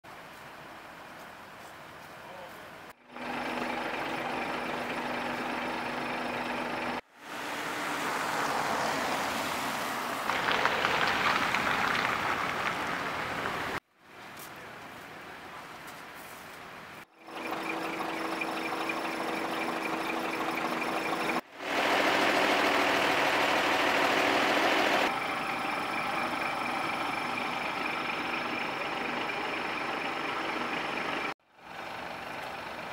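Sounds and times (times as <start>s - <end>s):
fire engines idling: 3.0s - 7.1s, 17.2s - 32.9s
crackling noise: 10.2s - 15.1s.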